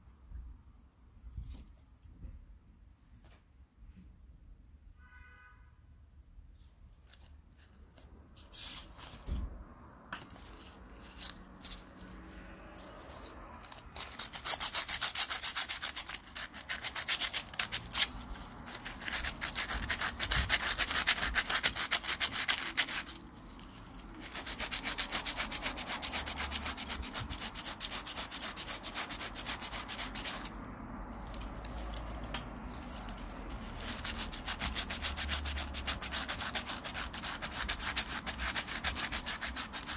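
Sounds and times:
sandpaper scraping metal: 13.0 - 23.3, 24.2 - 30.6, 32.7 - 39.9.

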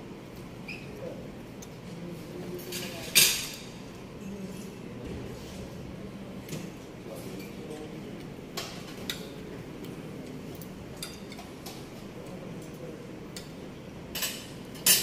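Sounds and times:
utensils and dishes clinking: 2.6 - 3.8, 8.5 - 15.0.

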